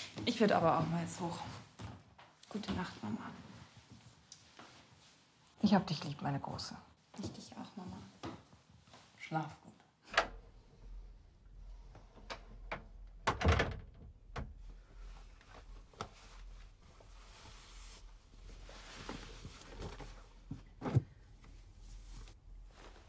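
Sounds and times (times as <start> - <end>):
door shutting: 10.1 - 11.0, 11.8 - 14.6
clothing rustling: 14.5 - 23.0.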